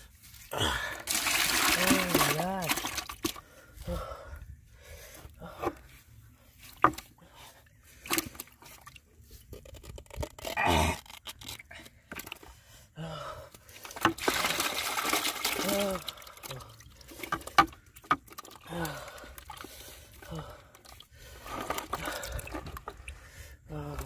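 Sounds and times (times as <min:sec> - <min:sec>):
hands handling clay pot: 0:05.5 - 0:12.5.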